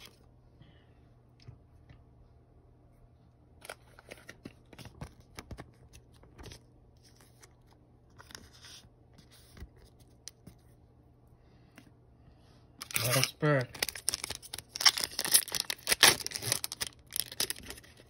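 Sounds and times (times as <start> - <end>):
trading cards and plastic sleeves handled: 3.5 - 10.8, 12.8 - 18.0.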